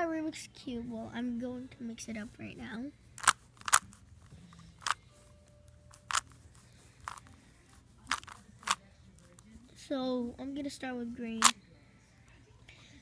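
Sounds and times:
plastic puzzle cube clicks: 3.2s - 3.9s, 4.8s - 5.0s, 5.9s - 6.3s, 7.0s - 7.2s, 8.1s - 8.8s.

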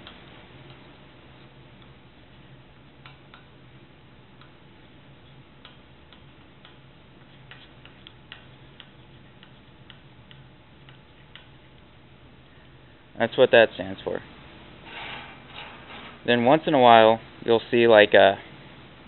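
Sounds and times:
low steady hum: 0.0s - 19.0s
chalk tapping and scraping: 5.2s - 11.5s.

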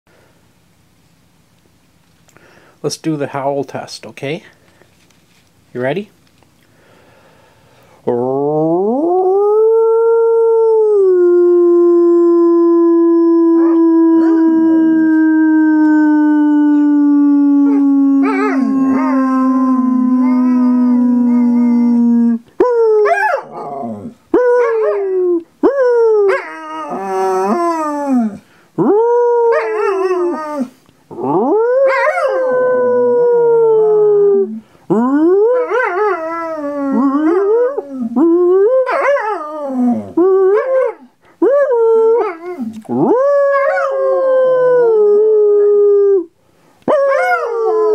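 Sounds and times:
dog howling: 8.1s - 46.3s, 46.9s - 47.9s
person howling: 8.1s - 46.3s.

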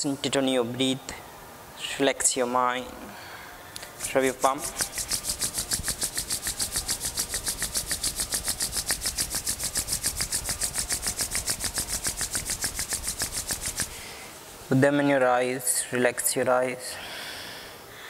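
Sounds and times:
palms rubbing together: 3.8s - 14.3s.

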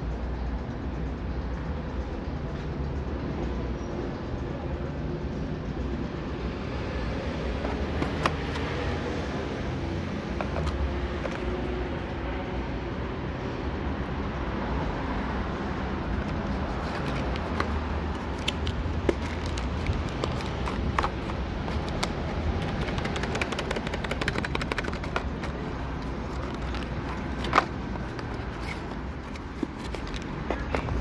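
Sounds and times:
cardboard box clicks and crackles: 7.6s - 8.9s, 10.3s - 11.7s, 16.2s - 31.0s.

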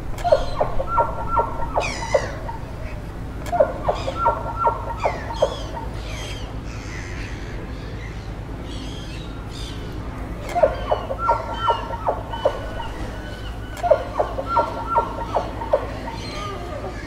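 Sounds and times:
steady low hum: 0.0s - 17.0s
bird chirps with falling notes: 0.2s - 6.5s, 10.5s - 16.7s.

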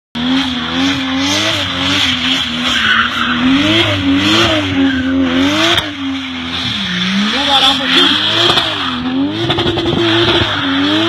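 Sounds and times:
car engine revving: 0.2s - 11.0s.

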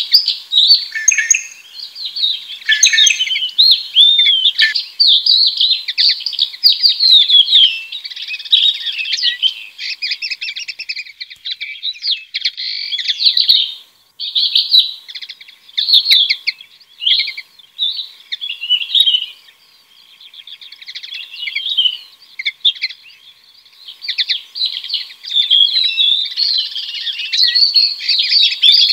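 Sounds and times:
distant small birds singing: 0.0s - 28.9s
shrike singing: 0.0s - 28.9s.

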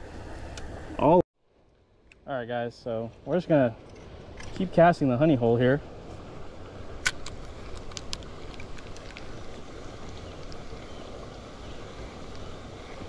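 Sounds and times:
wind and water noise: 0.0s - 13.0s.

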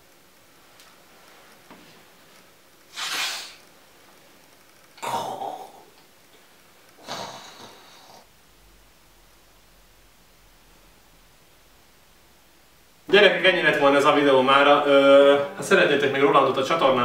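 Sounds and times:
person breathing in bursts: 2.9s - 3.6s, 7.0s - 8.3s.

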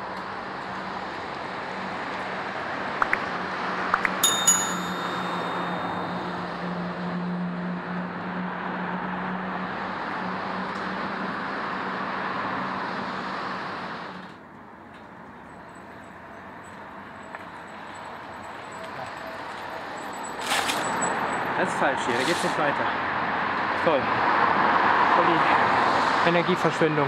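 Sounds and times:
traffic noise: 0.0s - 27.0s
bright bell-like ding: 4.2s - 6.9s.

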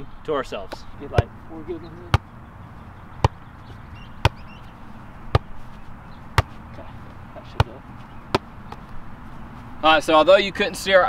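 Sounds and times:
volleyball hits: 2.1s - 2.3s, 3.1s - 3.5s, 4.1s - 4.5s, 5.3s - 5.5s, 7.5s - 8.9s.

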